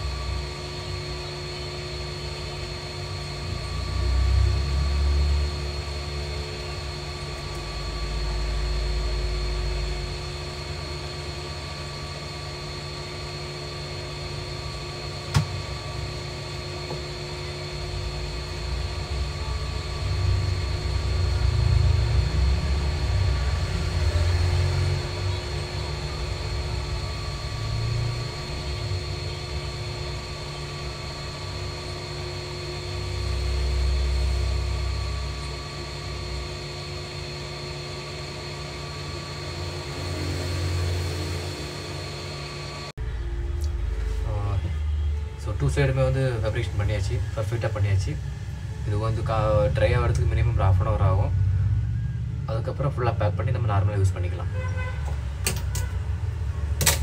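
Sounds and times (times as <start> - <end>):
machine hum with low rumble: 0.0 - 57.0
sharp click: 56.8 - 57.0.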